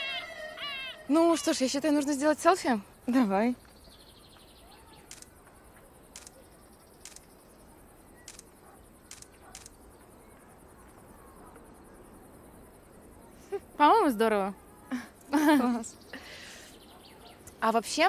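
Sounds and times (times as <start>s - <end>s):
faint steady background noise: 0.0s - 18.0s.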